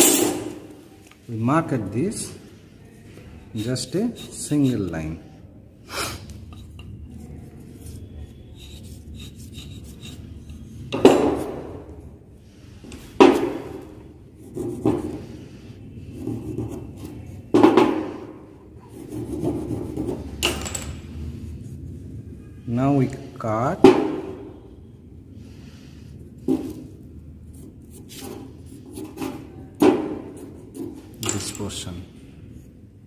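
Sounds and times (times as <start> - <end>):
marking gauge scraping wood: 3.6 - 5.0, 7.8 - 10.7.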